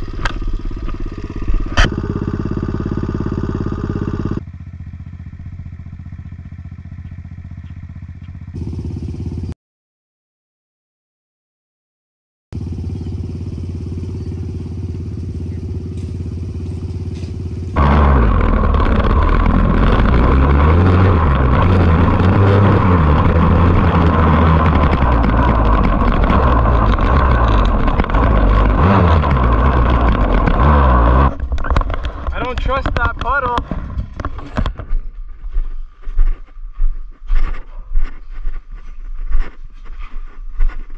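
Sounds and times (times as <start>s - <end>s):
low drone: 0.0s - 7.0s, 12.6s - 40.9s
dirt bike engine revving: 0.0s - 9.6s, 12.6s - 35.0s.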